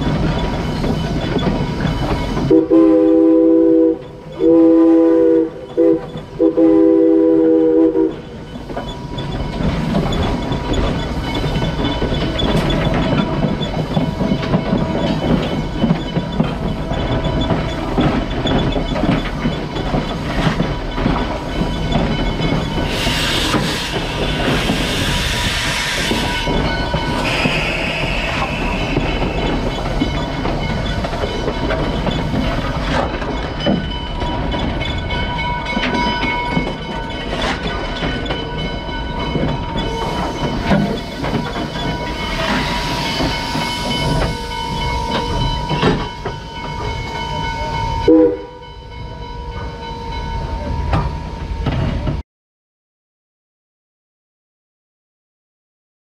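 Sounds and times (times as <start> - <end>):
wheels rumbling on rail: 0.0 - 52.2
steam hiss: 22.8 - 29.9, 40.0 - 44.2.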